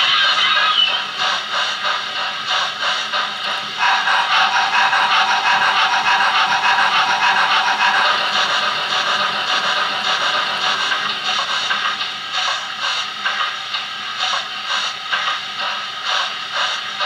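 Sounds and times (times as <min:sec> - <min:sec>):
steam locomotive exhaust chuffs: 0:00.0 - 0:17.0.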